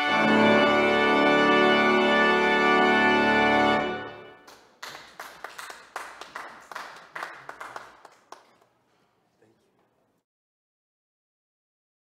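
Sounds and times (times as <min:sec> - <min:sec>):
church organ chord: 0:00.0 - 0:04.4
hand clapping: 0:04.4 - 0:09.0.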